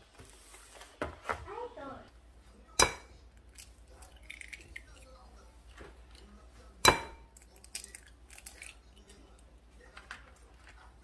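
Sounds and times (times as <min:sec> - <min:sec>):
eggs cracking against glass: 0:02.8 - 0:05.1, 0:06.9 - 0:09.2
eggshell crackles: 0:03.4 - 0:05.2, 0:07.4 - 0:09.2.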